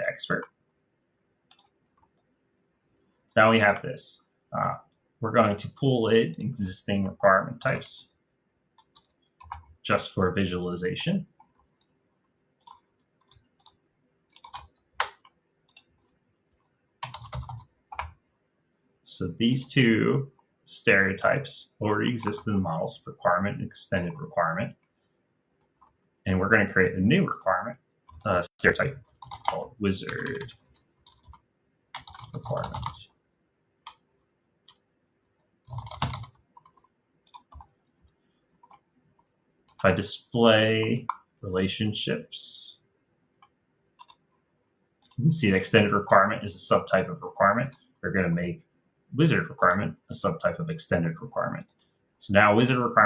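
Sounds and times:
mouse clicks: 1.5 - 1.8, 43.4 - 44.2
computer keyboard typing: 1.5 - 2.1, 8.8 - 9.8, 12.6 - 18.2, 28.9 - 33.1, 35.6 - 37.7, 44.0 - 44.3, 45.0 - 45.3
keyboard keystrokes: 35.7 - 37.7.

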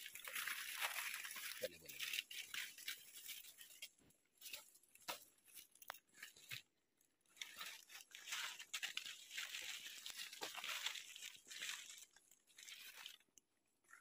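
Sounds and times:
leaves rustling: 0.0 - 6.6, 7.3 - 13.4
footsteps crunching through leaves: 7.4 - 13.2.

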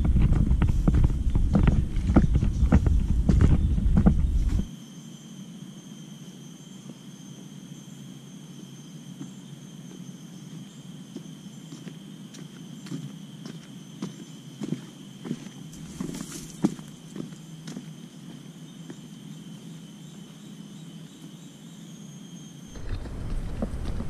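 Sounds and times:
footsteps on leafy dirt trail: 0.0 - 4.7, 11.2 - 18.4, 22.7 - 24.0
high insect drone: 0.0 - 24.0.

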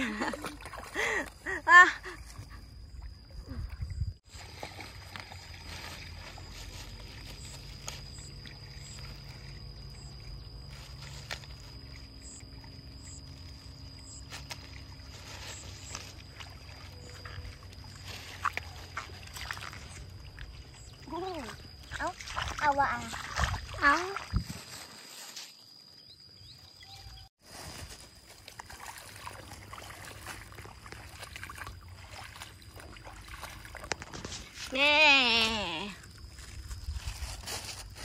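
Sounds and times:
high-pitched insect drone: 1.0 - 27.3
bird chirps: 26.0 - 27.3.

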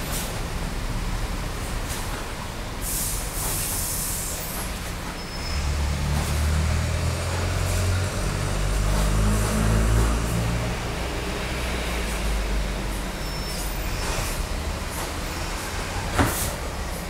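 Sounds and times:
heavy vehicle engine rumbling: 0.0 - 17.0.

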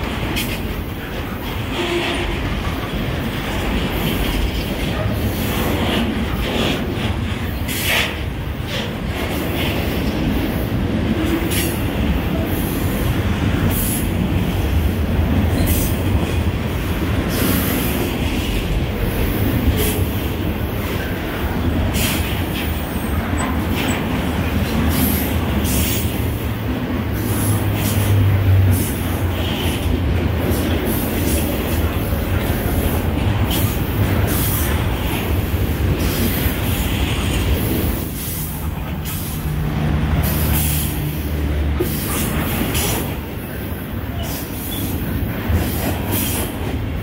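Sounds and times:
train wheels rumbling on rail: 0.0 - 47.0
sharp clicks and squeaks: 23.2 - 24.2.

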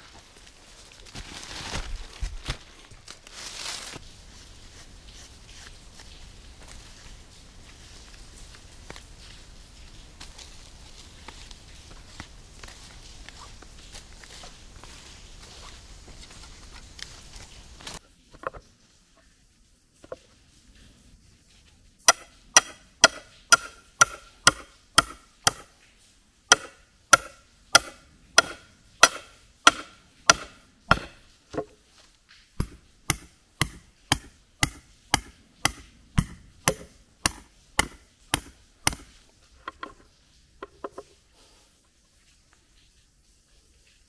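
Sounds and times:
hammer striking metal stake: 22.1 - 25.8, 26.5 - 31.8, 32.6 - 39.2.

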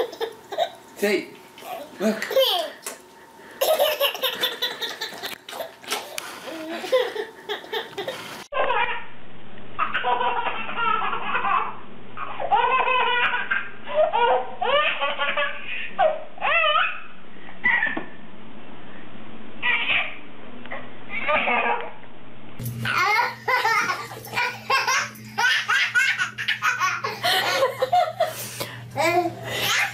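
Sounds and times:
baby laughing: 0.0 - 0.8, 1.7 - 2.8, 3.6 - 9.0, 9.8 - 18.0, 19.6 - 20.2, 22.8 - 28.1, 29.0 - 29.9.

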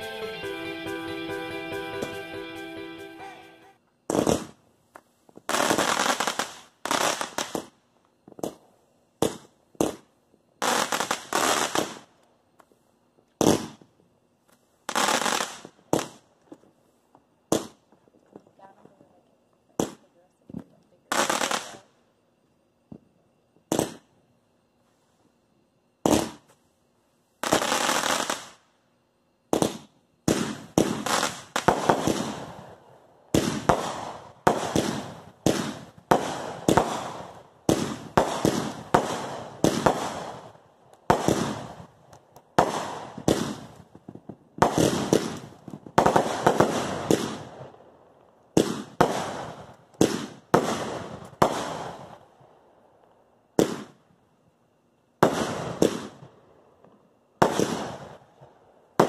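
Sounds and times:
fireworks bangs: 0.0 - 4.6, 5.3 - 12.1, 13.4 - 13.9, 14.9 - 16.2, 17.5 - 17.9, 23.7 - 24.1, 26.0 - 26.6, 27.4 - 28.6, 29.5 - 42.0, 42.6 - 47.8, 48.5 - 52.2, 53.6 - 54.0, 55.2 - 56.3, 57.4 - 58.4.

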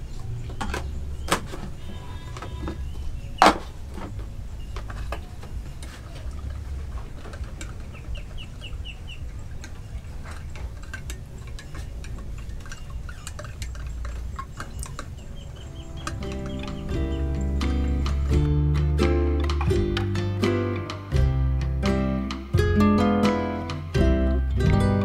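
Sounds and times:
high chirps: 11.6 - 21.2.

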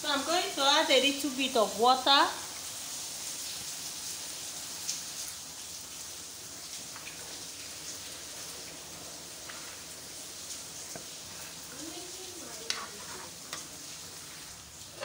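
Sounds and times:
soup sizzling in a pot: 0.0 - 15.0
water pouring: 2.4 - 15.0.

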